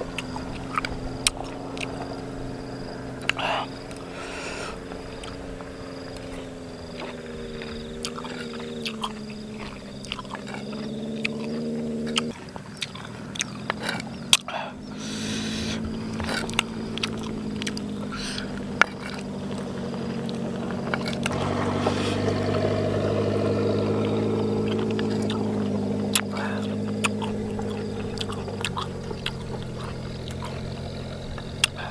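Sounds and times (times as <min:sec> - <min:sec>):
engine running: 0:00.0 - 0:31.9
soft eating sounds: 0:06.2 - 0:22.7, 0:26.1 - 0:30.9.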